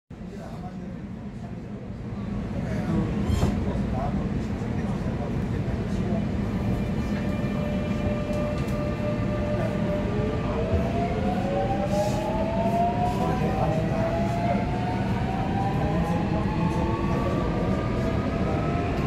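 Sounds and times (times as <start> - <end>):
train wheels rumbling on rail: 2.4 - 19.0
rising train motor whine: 5.9 - 19.0.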